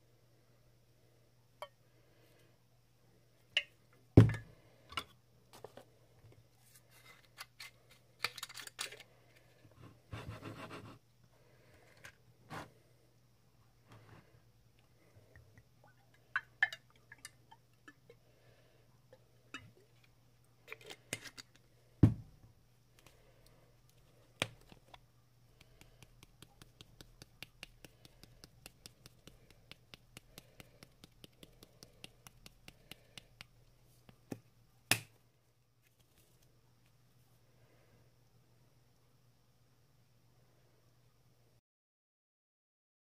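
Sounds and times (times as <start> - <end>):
spice shakers clicking and knocking: 24.4 - 35.0.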